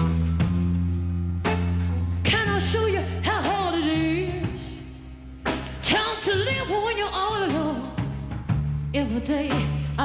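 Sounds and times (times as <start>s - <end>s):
band playing low chords: 0.0s - 10.0s
woman singing: 2.2s - 5.0s, 5.8s - 8.1s, 8.9s - 10.0s.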